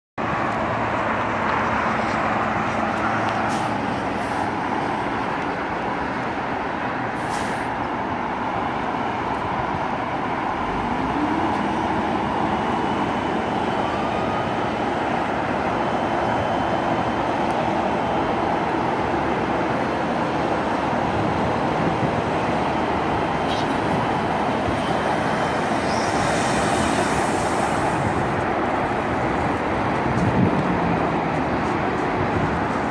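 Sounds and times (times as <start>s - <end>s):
road traffic roar: 0.2s - 32.9s
truck engine rising in pitch: 21.6s - 31.6s.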